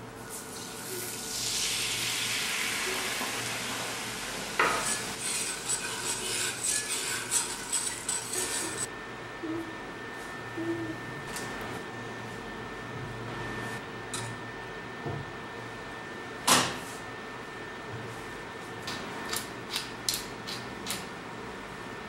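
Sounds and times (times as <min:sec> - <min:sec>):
spatula scraping pan: 0:04.6 - 0:08.9.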